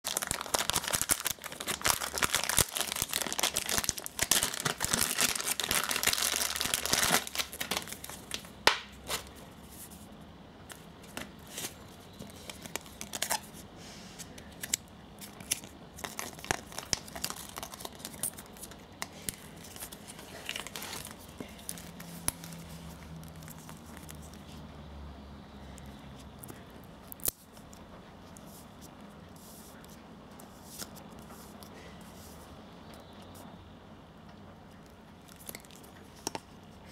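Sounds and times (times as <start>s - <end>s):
plastic bag crinkling: 0.0s - 9.3s, 11.5s - 13.5s, 14.6s - 24.4s.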